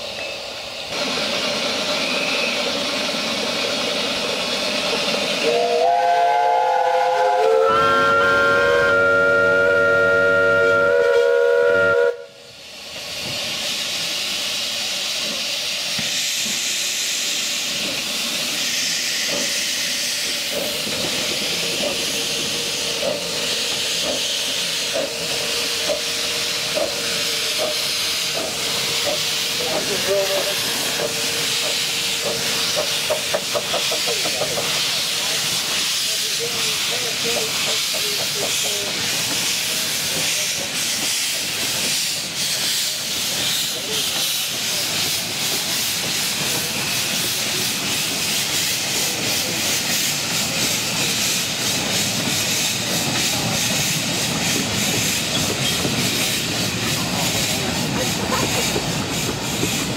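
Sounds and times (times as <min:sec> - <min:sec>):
steam hissing: 0:00.0 - 0:59.9
steam whistles: 0:05.4 - 0:12.5.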